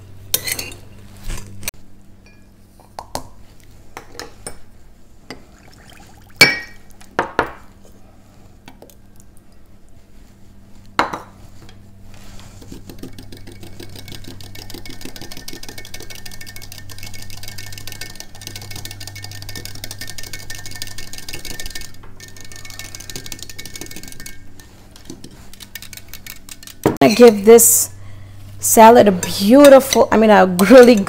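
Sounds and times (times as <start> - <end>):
glass clink: 2.2 - 2.5, 6.4 - 6.8
wire whisk rattling against glass: 13.1 - 26.9.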